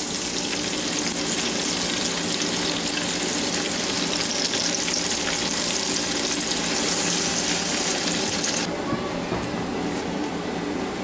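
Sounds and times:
hot grease sizzling: 0:00.0 - 0:08.7.

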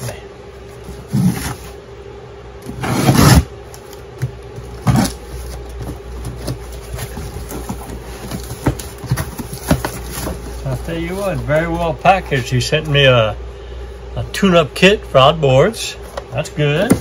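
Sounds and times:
steady low hum: 0:00.0 - 0:17.0
cardboard flaps scraping: 0:00.7 - 0:01.8, 0:02.6 - 0:12.9
packing tape ripping: 0:02.8 - 0:04.0, 0:04.8 - 0:05.2.

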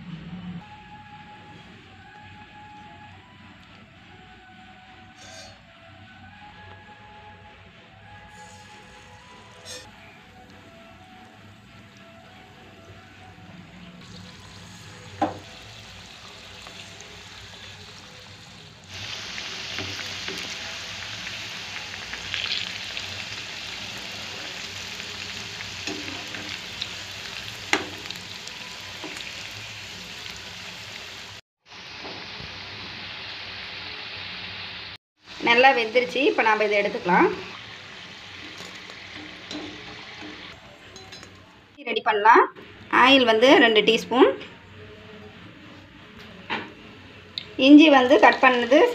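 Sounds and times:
deep-frying in hot oil sizzle: 0:08.1 - 0:12.4, 0:14.0 - 0:41.3, 0:47.5 - 0:48.9.

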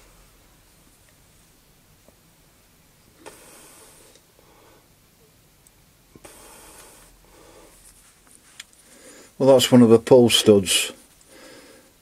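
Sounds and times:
close breathing: 0:03.2 - 0:04.9, 0:06.2 - 0:08.2, 0:08.8 - 0:09.4, 0:11.2 - 0:12.0.

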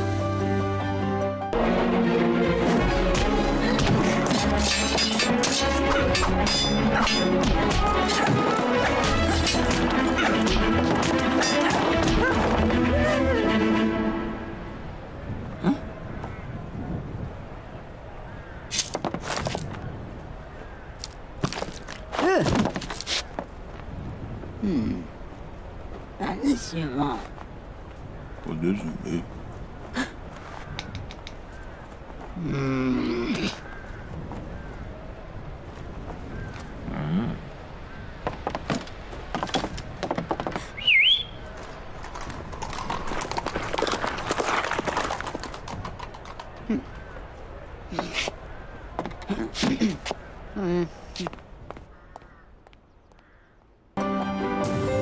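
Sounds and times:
swooping whistle: 0:40.8 - 0:41.4.

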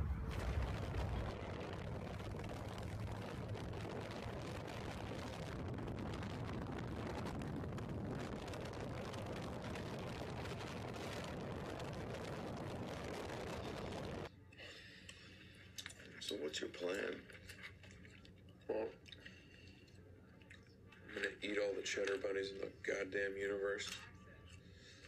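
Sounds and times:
motorcycle engine running: 0:00.0 - 0:14.3
wind rushing over microphone: 0:00.0 - 0:14.3.

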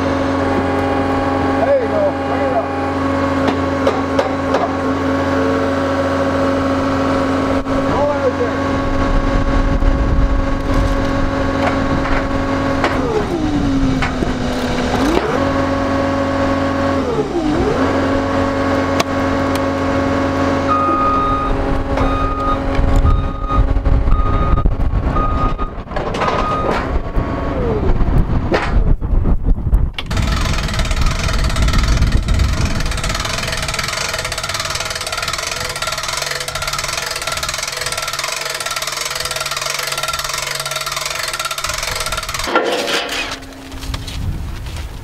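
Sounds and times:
diesel engine running: 0:00.0 - 0:44.8
backup alarm beeping: 0:20.7 - 0:26.8.

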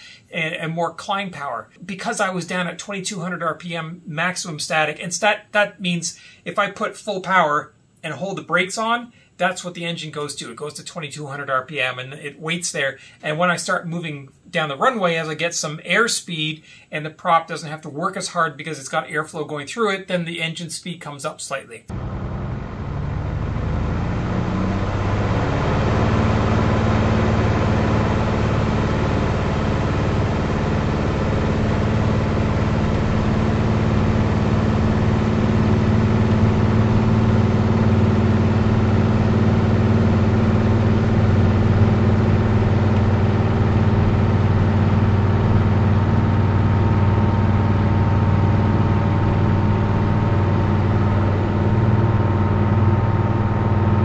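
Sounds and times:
aircraft engine running: 0:21.9 - 0:54.0.

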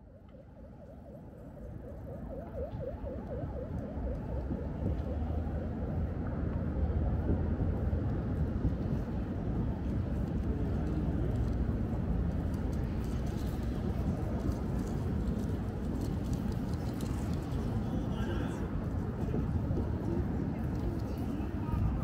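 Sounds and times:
distant siren warbling: 0:00.0 - 0:07.6.

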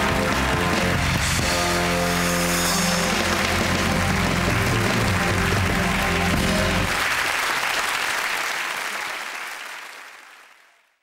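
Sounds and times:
closing music: 0:00.0 - 0:07.3
audience applauding and cheering: 0:00.0 - 0:11.0.

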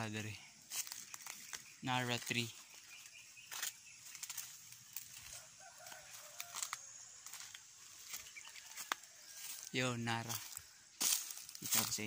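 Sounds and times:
clicks and rustles in dry leaves: 0:00.6 - 0:12.0
chickens clucking: 0:04.2 - 0:11.9.

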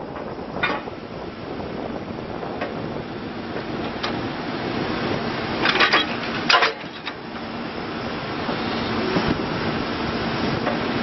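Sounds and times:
diesel engine under load: 0:00.0 - 0:11.0
backhoe arm metal clanks: 0:00.6 - 0:01.0, 0:05.6 - 0:07.2.

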